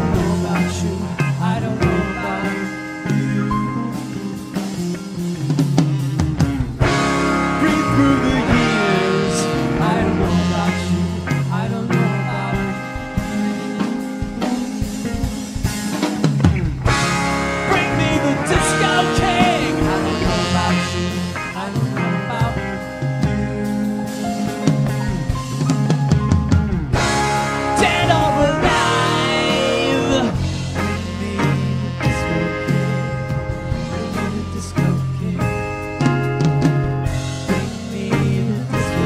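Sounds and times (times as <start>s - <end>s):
live rock band instrumental: 0.0s - 39.0s
saxophone: 0.0s - 39.0s.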